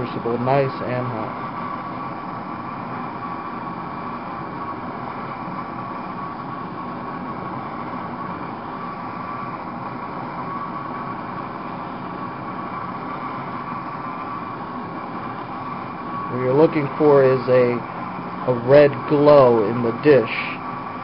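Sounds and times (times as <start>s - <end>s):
blow torch hissing: 0.0s - 21.0s.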